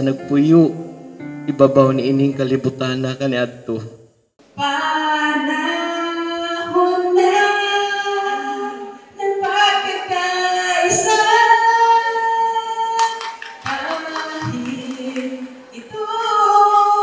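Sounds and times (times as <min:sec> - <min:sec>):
woman singing slowly: 0:04.6 - 0:17.0.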